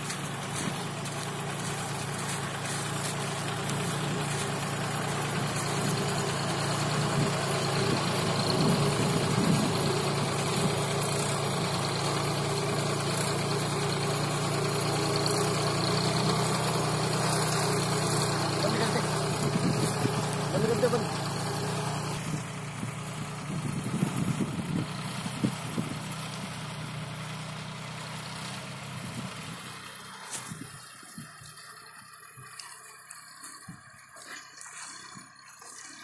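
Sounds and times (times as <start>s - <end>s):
tractor diesel engine running: 0.0s - 36.0s.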